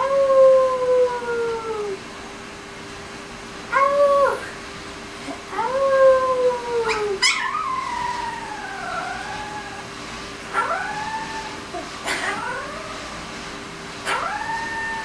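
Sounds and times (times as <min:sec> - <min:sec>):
puppy howling: 0:00.0 - 0:02.0, 0:03.7 - 0:04.5, 0:05.5 - 0:09.9, 0:10.5 - 0:13.2, 0:14.0 - 0:15.0.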